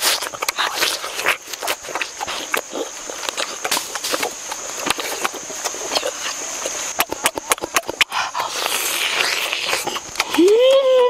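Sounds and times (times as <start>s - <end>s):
chewing watermelon: 0.0s - 11.0s.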